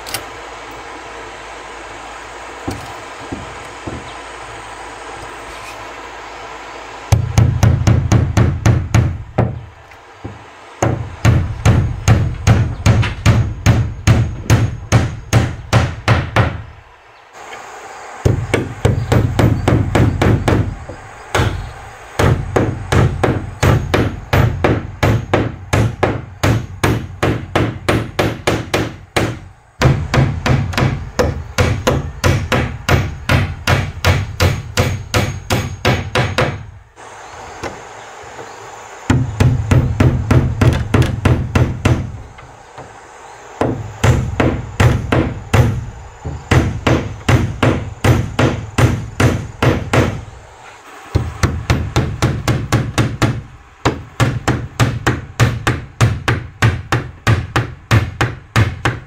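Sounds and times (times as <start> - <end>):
hammer striking nails into wood: 7.1 - 9.6, 10.2 - 16.6, 18.2 - 36.7, 39.1 - 42.9, 43.6 - 50.2, 51.1 - 59.0.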